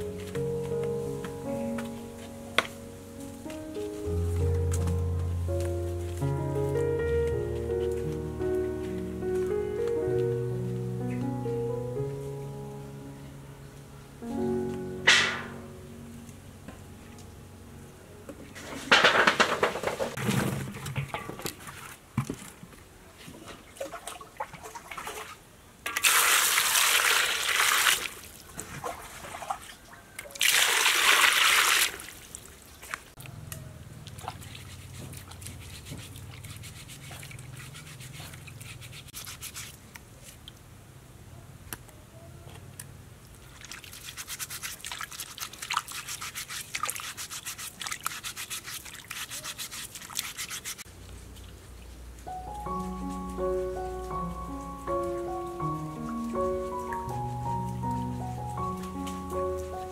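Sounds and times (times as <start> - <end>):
splashing and dribbling water: 23.3 - 33.2, 33.8 - 40.7, 43.3 - 52.0
rushing water into basin: 23.7 - 32.5, 43.5 - 50.8.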